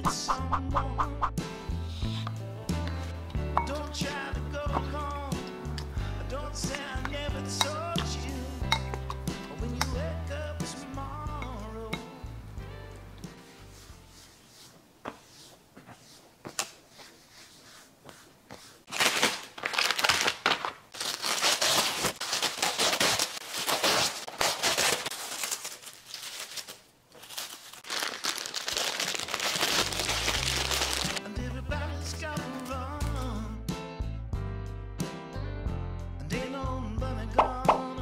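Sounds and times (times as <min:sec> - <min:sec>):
music with bass line: 0:00.0 - 0:13.2, 0:31.2 - 0:38.0
cloth wiping countertop: 0:13.3 - 0:18.9
plastic wrap crinkling: 0:18.8 - 0:31.2, 0:32.0 - 0:33.4
plastic bag crinkling: 0:18.9 - 0:31.2, 0:32.0 - 0:33.4.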